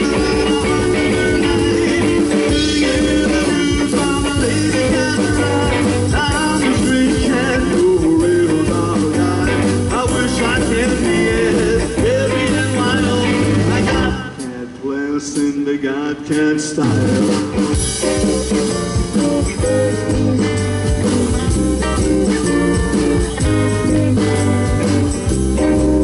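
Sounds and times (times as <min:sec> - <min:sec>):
electric guitar bending notes: 0:00.0 - 0:14.6, 0:17.0 - 0:26.0
rockabilly band playing: 0:00.0 - 0:26.0.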